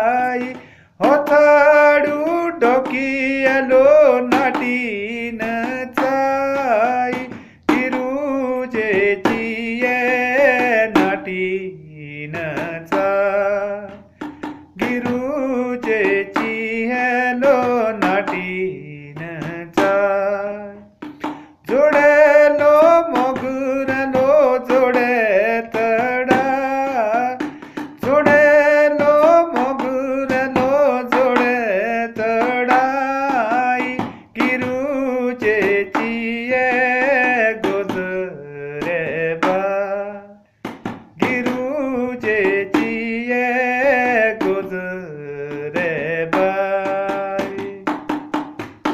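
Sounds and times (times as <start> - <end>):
steady drum beat: 0.0 - 11.4, 12.3 - 20.2, 20.9 - 38.1, 40.6 - 43.4, 45.5 - 48.9
man singing: 0.0 - 48.9.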